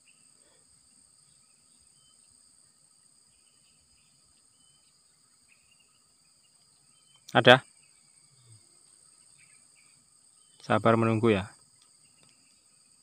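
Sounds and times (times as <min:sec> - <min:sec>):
high-pitched insect chorus: 0:00.0 - 0:13.0.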